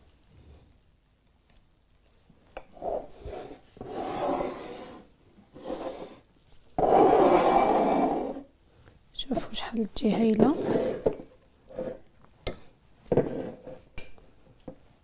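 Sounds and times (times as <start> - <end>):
rubbing and scraping: 2.7 - 8.4, 10.4 - 12.1.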